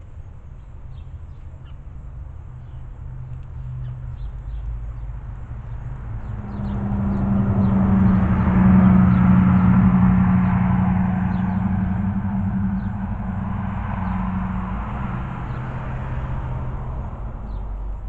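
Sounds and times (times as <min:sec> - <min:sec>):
sparrows chirping: 0:03.5 - 0:16.4
buzzy motor hum: 0:05.2 - 0:17.3.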